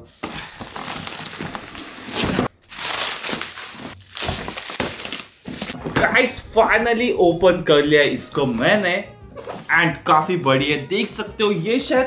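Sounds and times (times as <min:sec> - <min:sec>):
bubble wrap crinkling and tearing: 0:00.1 - 0:05.8.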